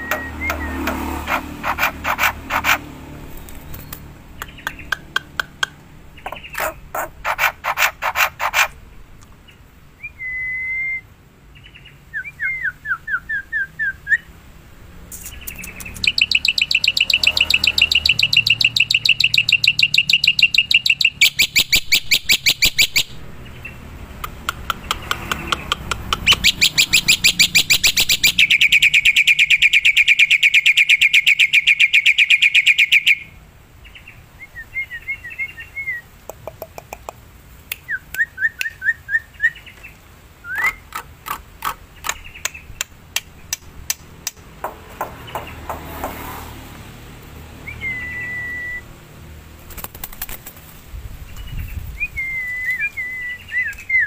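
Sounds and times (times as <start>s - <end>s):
myna singing whistles: 0.0s - 0.9s, 10.0s - 11.0s, 47.6s - 48.9s, 52.0s - 54.0s
bird rattling trills: 0.0s - 4.0s, 6.2s - 8.8s.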